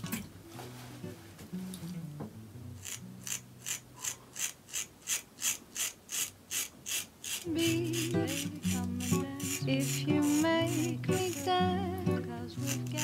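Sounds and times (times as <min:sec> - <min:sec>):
razor scraping stubble: 0:02.8 - 0:11.6, 0:12.6 - 0:13.0.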